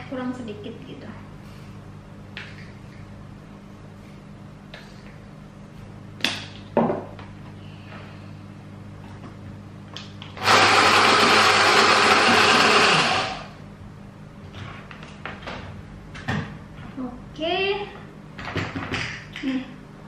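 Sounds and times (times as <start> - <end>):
stick blender motor grinding: 10.4 - 13.5.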